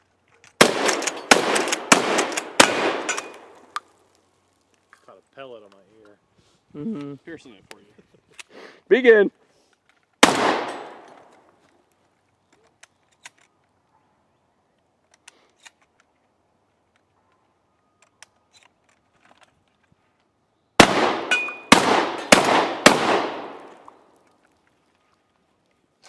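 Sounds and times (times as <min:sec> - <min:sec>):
shotgun reloading clicks: 0:00.4 - 0:03.9
loud shotgun blasts: 0:00.6 - 0:03.7, 0:10.2 - 0:11.3, 0:20.8 - 0:24.0.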